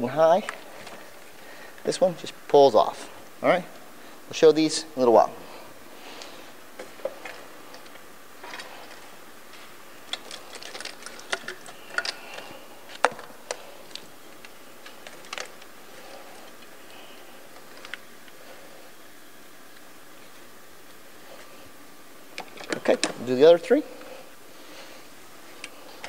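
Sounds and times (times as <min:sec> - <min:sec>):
plastic connectors clicking and rattling: 0:10.1 - 0:15.7.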